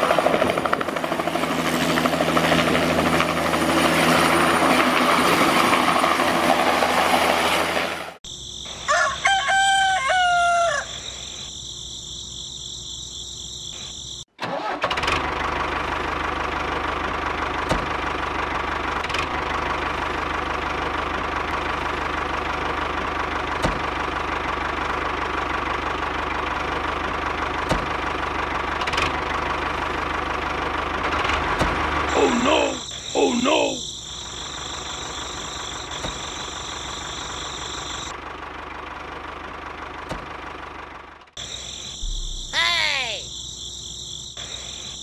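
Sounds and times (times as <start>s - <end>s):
rooster crowing: 8.7s - 11.4s.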